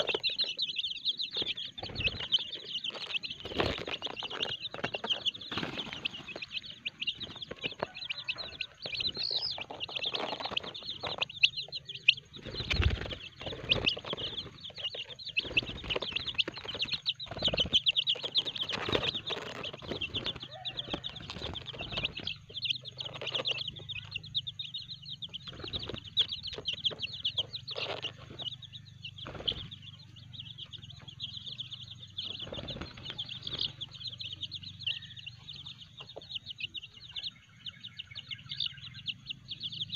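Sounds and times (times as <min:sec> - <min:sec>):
chicks peeping: 0:00.0 - 0:39.9
wings flapping and rustling: 0:01.3 - 0:11.3, 0:12.3 - 0:23.6, 0:25.4 - 0:27.1, 0:29.2 - 0:29.8, 0:32.2 - 0:34.0.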